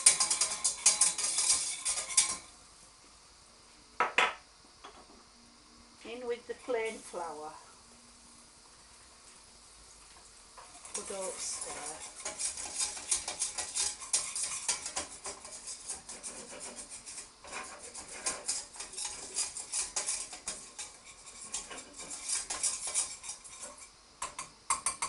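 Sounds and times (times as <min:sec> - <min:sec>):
whisk scraping a steel saucepan: 0:00.0 - 0:02.5, 0:10.6 - 0:25.0.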